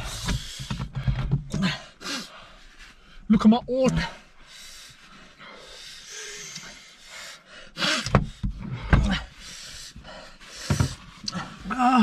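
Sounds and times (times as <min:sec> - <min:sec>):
man breathing hard and hissing: 0:00.0 - 0:03.3, 0:04.0 - 0:11.7
man groaning: 0:11.6 - 0:12.0.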